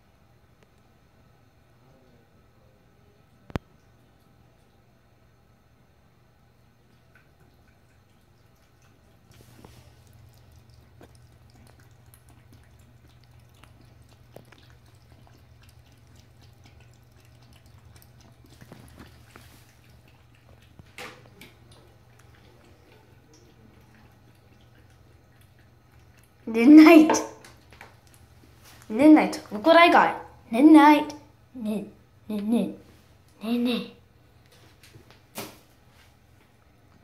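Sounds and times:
cat lapping water: 6.6 - 29.7.

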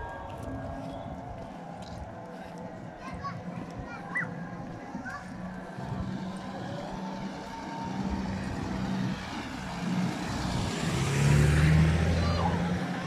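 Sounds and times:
car driving past: 6.3 - 13.0.

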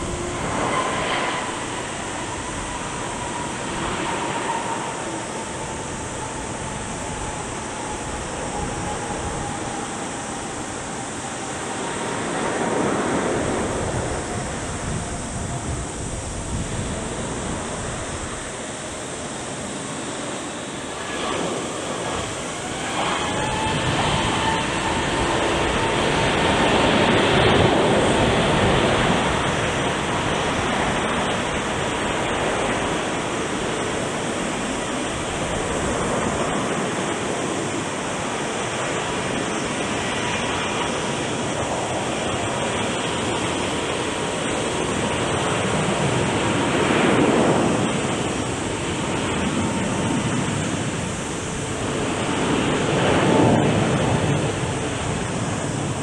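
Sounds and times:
jet engine roar: 0.0 - 56.0.

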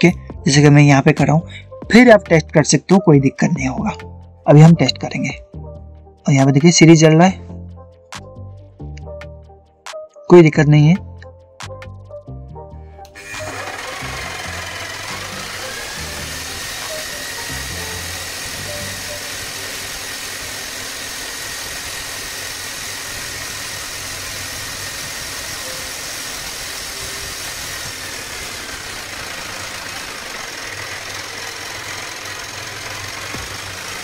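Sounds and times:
demolition hammer motor whining: 13.1 - 34.0.

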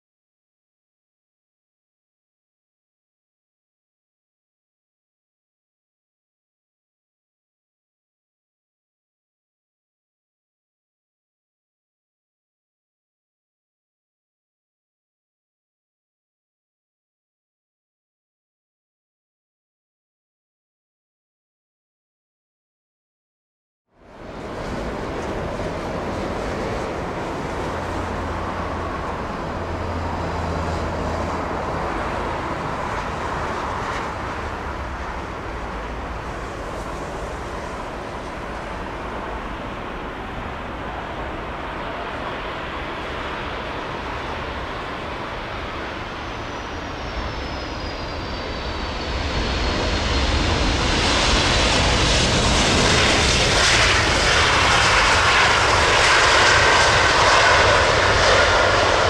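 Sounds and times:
jet engines running: 24.0 - 59.0
high jet whine falling in pitch: 24.1 - 59.0.

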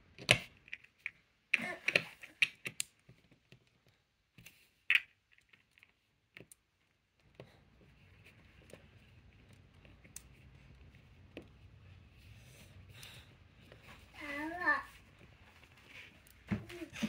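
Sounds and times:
plastic lego pieces clicking: 0.2 - 3.0.

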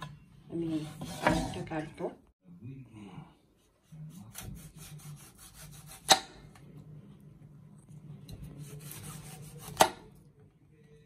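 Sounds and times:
knife sawing through fruit: 3.8 - 6.1, 8.6 - 9.9.

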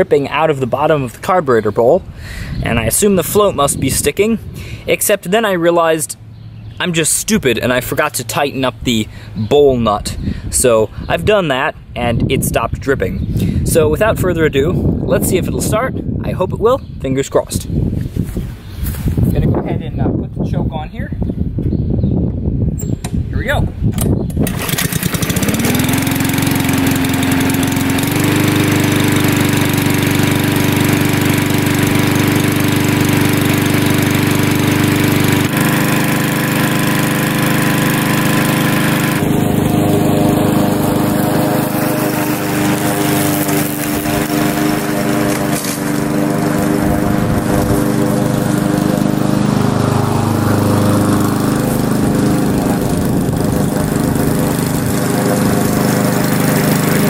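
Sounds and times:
lawn mower engine starting and running: 0.0 - 9.9, 23.8 - 57.0.

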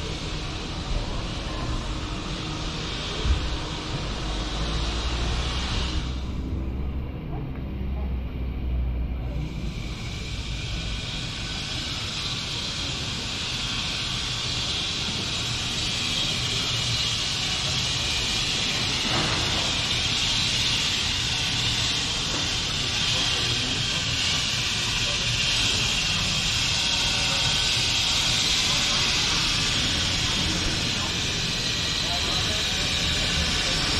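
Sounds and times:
distant traffic hum: 4.0 - 11.9
faint voices: 21.9 - 33.9.

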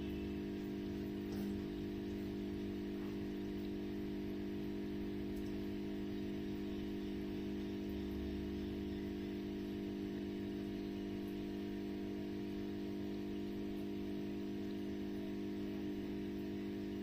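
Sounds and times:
aquarium equipment humming: 0.0 - 17.0.

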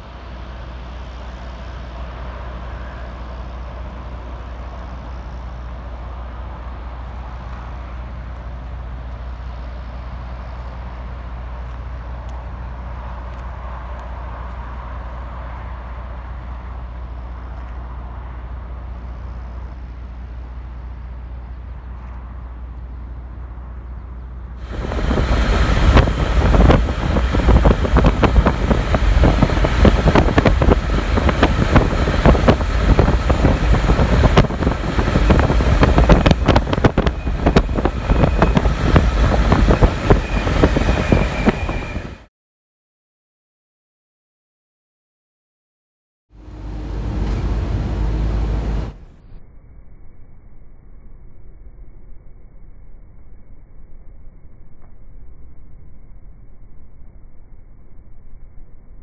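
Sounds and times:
low engine hum: 0.0 - 42.3, 46.3 - 59.0
road rumble: 0.0 - 42.3, 46.3 - 59.0
wind buffeting microphone: 24.6 - 42.3.

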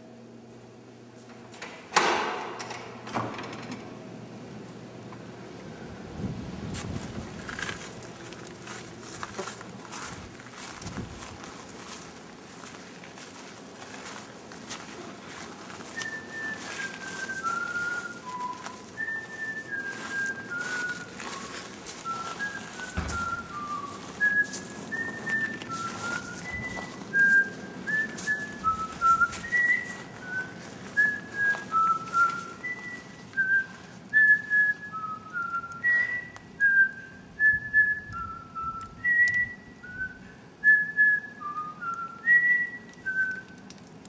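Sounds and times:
person whistling a tune: 15.9 - 43.6.

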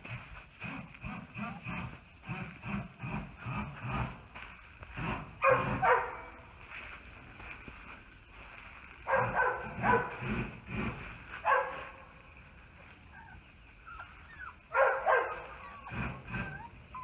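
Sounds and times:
puppy whining: 13.0 - 17.0
puppy yapping: 13.2 - 17.0.

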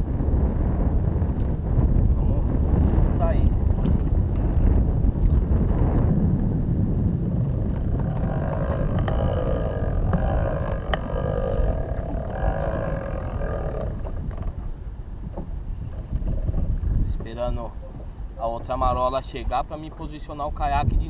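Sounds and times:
wind buffeting microphone: 0.0 - 21.0
motorboat engine drone: 6.5 - 17.0.

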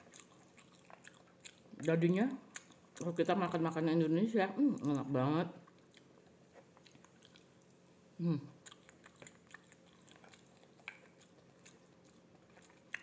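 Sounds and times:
person chewing: 0.0 - 1.9, 2.5 - 3.1, 5.6 - 7.8, 8.6 - 13.0
person humming mm: 8.2 - 8.6.

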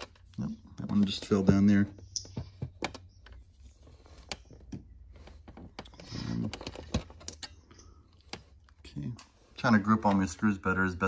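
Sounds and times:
clicks and taps of plastic parts: 0.7 - 3.4.

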